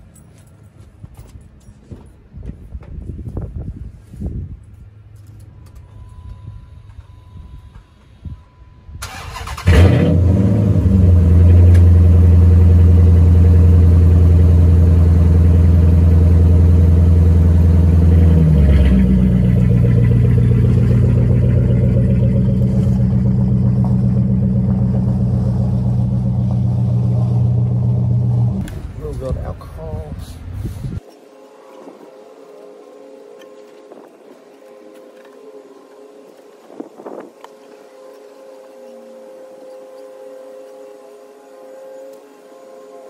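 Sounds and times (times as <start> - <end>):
car driving off: 9.0 - 28.7
car engine starting and running: 9.0 - 29.0.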